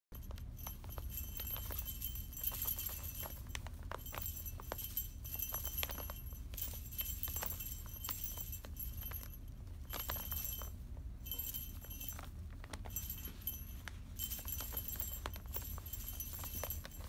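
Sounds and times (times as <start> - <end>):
paws tapping toys: 0.1 - 17.0
small bell jingling: 0.1 - 17.0.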